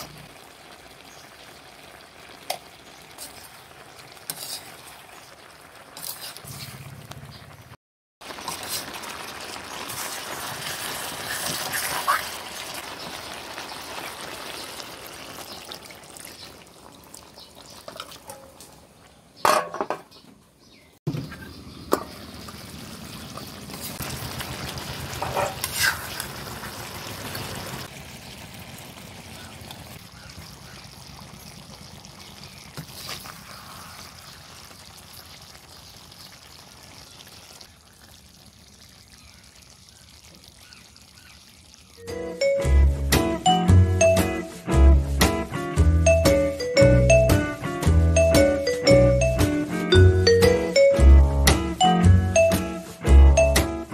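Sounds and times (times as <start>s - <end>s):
food sizzling in a pot: 0.0s - 7.0s, 8.2s - 18.6s, 22.1s - 46.2s
spoon scraping a pot: 4.3s - 4.9s.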